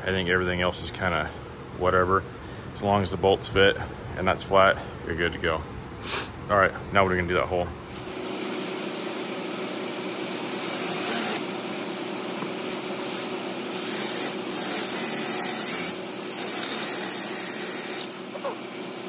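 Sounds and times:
cordless drill whining: 10.1 - 11.4, 13.0 - 18.5.

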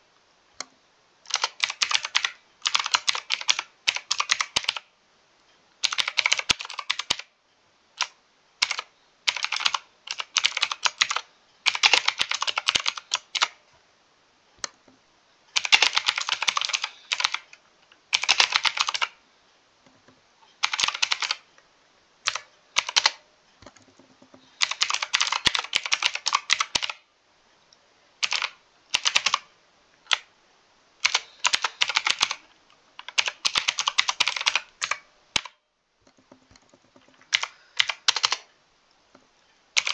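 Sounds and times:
typing on mechanical keyboard: 1.3 - 4.9, 5.8 - 7.3, 8.0 - 13.6, 15.5 - 19.2, 20.6 - 21.5, 22.3 - 27.0, 28.2 - 29.5, 31.0 - 38.5.

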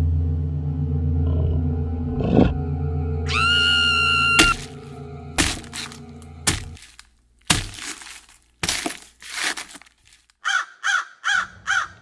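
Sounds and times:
short caws: 10.4 - 12.0.

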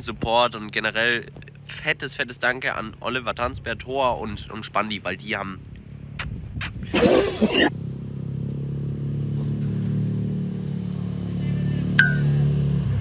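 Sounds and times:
vehicle engine humming: 7.0 - 13.0.

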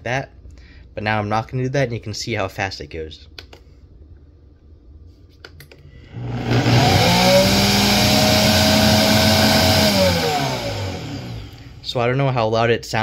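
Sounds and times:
blender motor whining: 6.1 - 11.8.

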